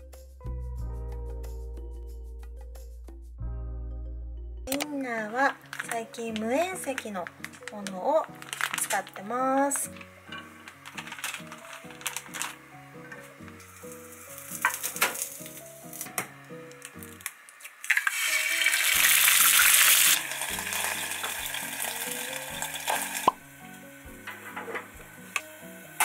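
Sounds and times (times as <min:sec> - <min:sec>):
frying hiss: 0:05.0 - 0:26.0
egg sizzling in hot pan: 0:05.6 - 0:26.0.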